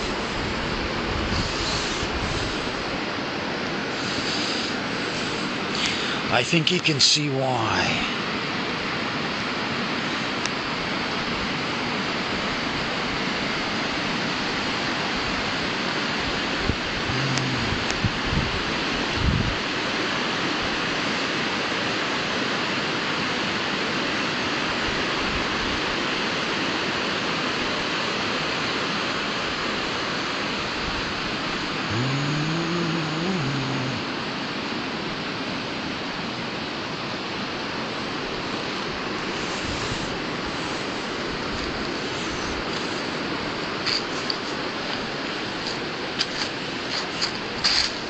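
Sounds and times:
short low hum: 31.8s - 34.0s.

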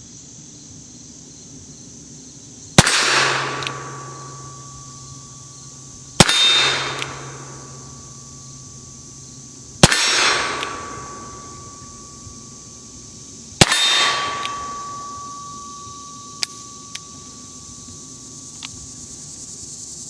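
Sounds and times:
faint steady ringing: 0.0s - 20.0s
revolver shots echoing: 2.8s - 18.4s.

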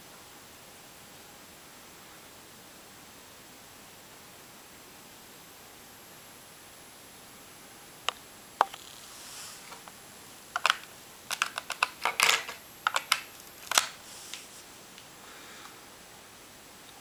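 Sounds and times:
sharp clicks: 10.6s - 14.0s.

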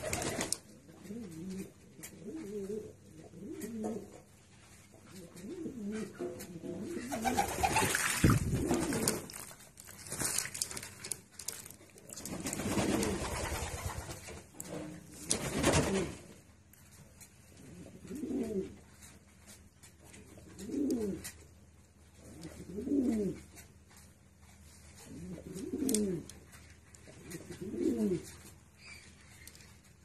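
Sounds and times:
pigeons cooing: 0.0s - 4.3s, 5.2s - 9.4s, 12.3s - 13.9s, 17.6s - 18.8s, 20.4s - 21.4s, 22.2s - 23.5s, 25.0s - 26.3s, 27.1s - 28.4s
pigeon splashing in water: 7.2s - 9.5s.

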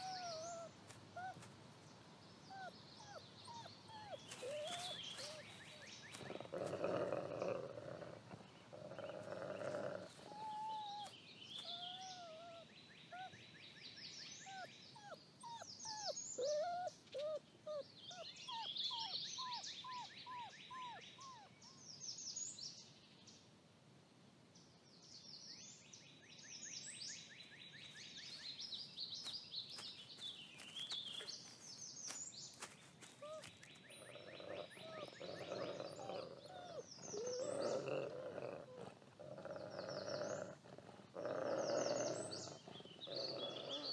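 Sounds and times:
songbirds singing: 0.0s - 23.5s, 24.6s - 43.9s
wolf growling: 2.5s - 12.5s, 33.2s - 43.9s.

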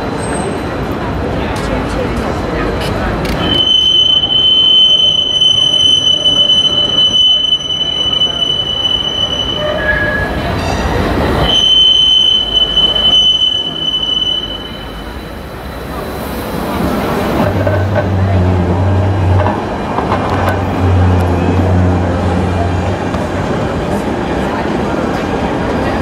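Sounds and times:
tram rumble: 0.0s - 26.0s
tram wheels squealing: 3.2s - 22.8s.

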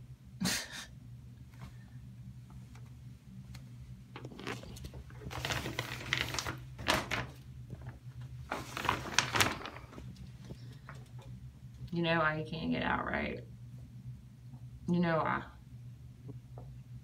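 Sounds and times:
low steady hum: 0.0s - 17.0s
plastic shower curtain crinkling: 4.2s - 11.0s.

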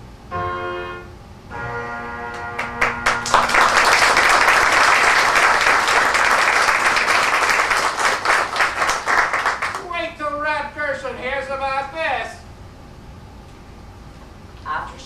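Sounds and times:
audience applause: 2.3s - 9.8s.

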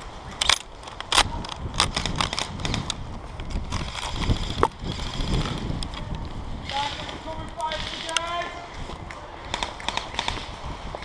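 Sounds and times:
sharp irregular clicks: 0.4s - 8.4s, 9.1s - 10.6s.

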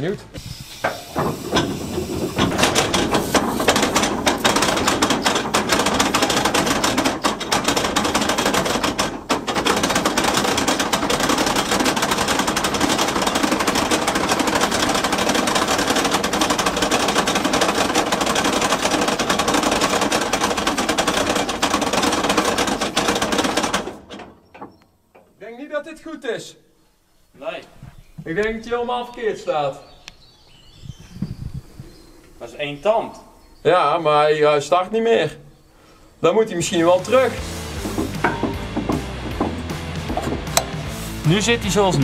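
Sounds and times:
diesel engine clattering: 0.0s - 25.4s, 36.8s - 42.0s.

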